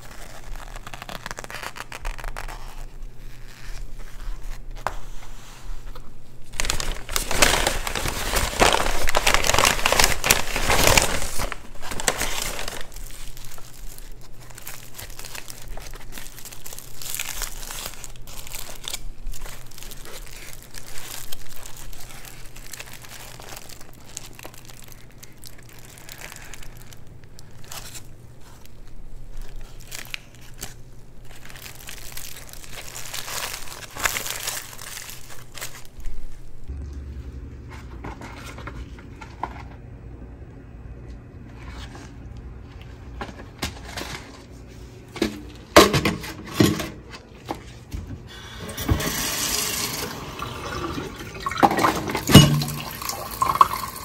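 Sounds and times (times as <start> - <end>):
food packaging crinkling: 0.0 - 36.7, 49.1 - 54.0.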